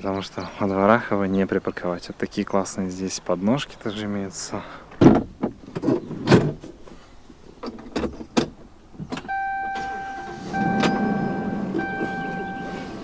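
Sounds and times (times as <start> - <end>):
electronic warning chime: 9.3 - 13.0
low hum: 9.3 - 13.0.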